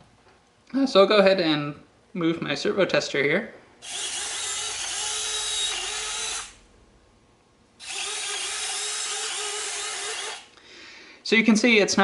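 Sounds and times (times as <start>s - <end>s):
gear motor whirring: 3.8s - 6.6s, 7.8s - 10.5s.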